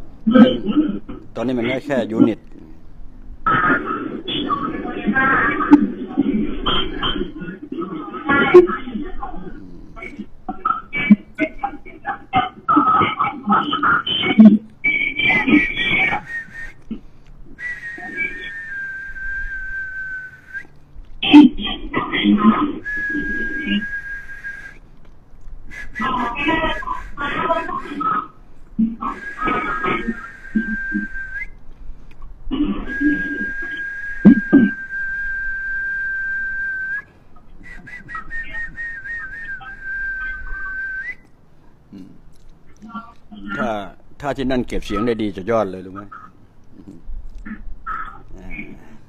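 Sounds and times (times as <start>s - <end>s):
person whistling: 14.9s - 16.8s, 17.6s - 20.8s, 22.8s - 24.8s, 25.7s - 27.2s, 29.0s - 31.6s, 32.8s - 41.3s.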